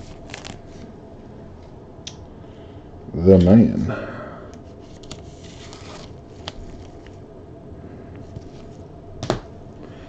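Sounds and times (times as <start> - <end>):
cards sliding rustle: 0.0 - 0.9, 4.7 - 7.2.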